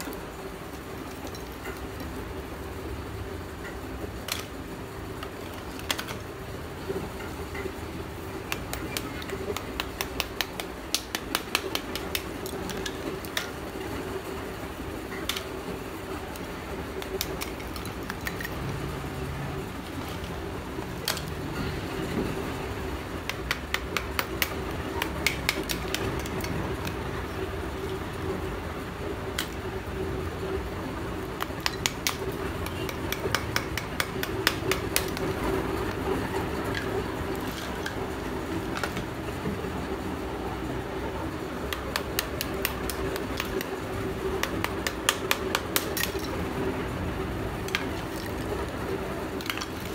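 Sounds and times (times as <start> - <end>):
small hammer chipping clay lumps: 8.2 - 14.3, 15.1 - 18.6, 23.1 - 27.0, 31.2 - 36.0, 41.6 - 46.5.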